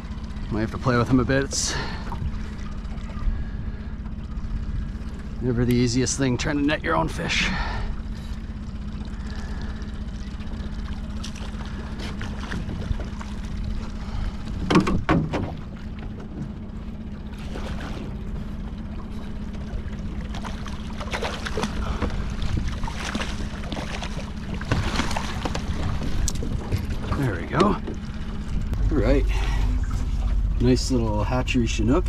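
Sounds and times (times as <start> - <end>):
outboard motor running: 0.0 - 32.0
fish splashing at water surface: 20.2 - 26.3.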